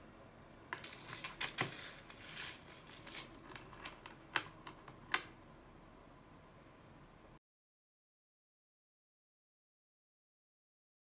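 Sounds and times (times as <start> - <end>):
packaging rustling: 0.8 - 4.9.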